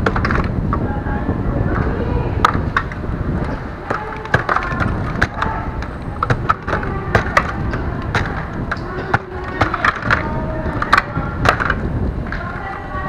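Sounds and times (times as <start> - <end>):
hard objects clattering: 0.0 - 0.9, 1.6 - 13.0.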